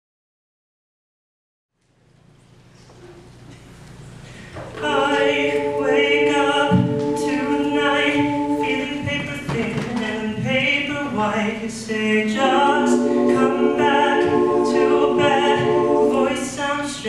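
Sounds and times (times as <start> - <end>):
male a cappella group singing: 4.8 - 17.0.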